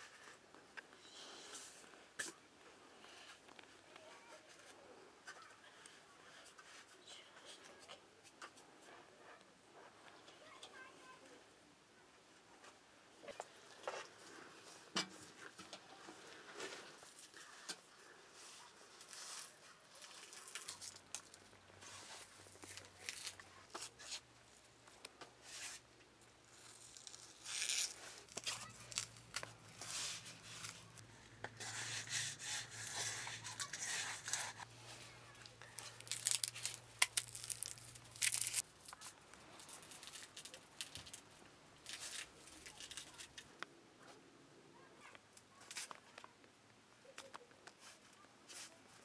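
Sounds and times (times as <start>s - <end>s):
onion skin crackling and tearing: 20.0s - 24.2s, 26.4s - 31.0s, 35.4s - 43.5s
knife scraping onion: 26.8s - 34.7s.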